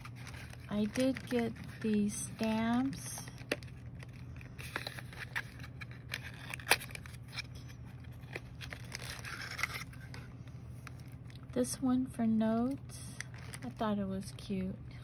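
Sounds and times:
light paper rustling: 0.0s - 11.2s
low steady hum: 0.0s - 15.0s.

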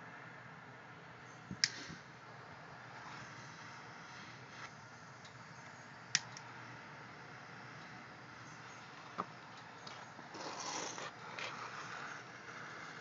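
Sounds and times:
torch click: 1.5s - 2.0s, 6.1s - 6.5s
torch flame hissing: 2.8s - 5.0s, 8.1s - 13.0s.

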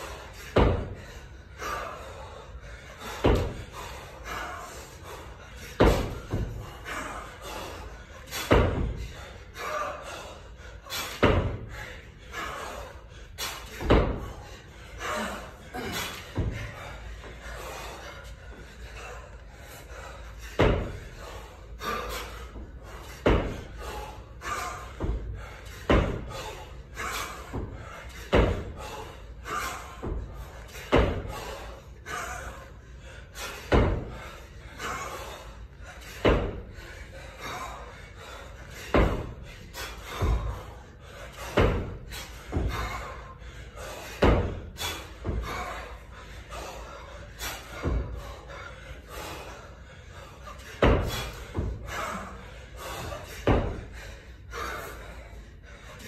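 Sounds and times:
kettlebell thudding: 0.2s - 1.1s, 3.0s - 3.9s, 5.7s - 7.0s, 8.2s - 9.2s, 10.9s - 12.7s, 13.4s - 16.9s, 20.4s - 31.7s, 33.4s - 34.3s, 36.1s - 36.9s, 38.7s - 43.2s, 43.8s - 46.1s, 47.3s - 49.4s, 50.6s - 54.1s.

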